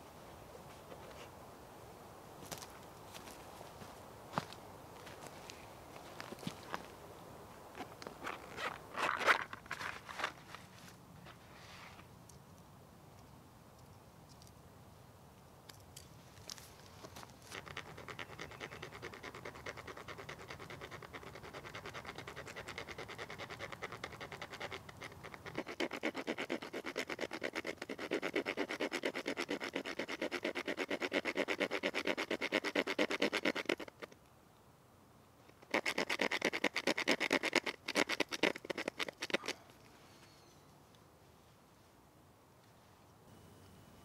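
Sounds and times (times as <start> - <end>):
small saw rasping wood: 17.6 - 34.1, 35.6 - 39.4.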